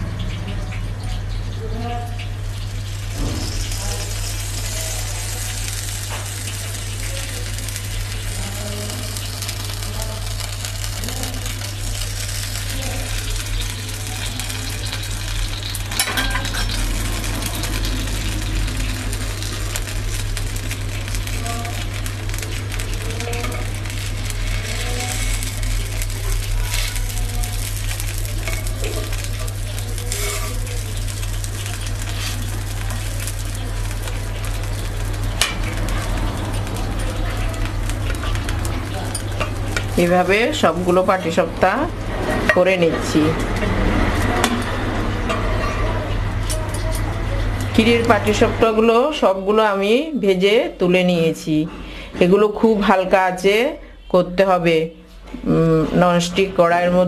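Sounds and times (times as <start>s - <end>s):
crepe batter sizzling in a pan: 0.0s - 49.4s
metal spatula scraping a pan: 30.0s - 30.8s.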